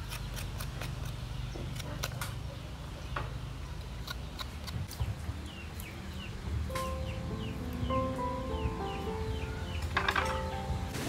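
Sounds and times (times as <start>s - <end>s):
knife scraping ginger skin: 0.0s - 2.4s, 3.9s - 5.0s.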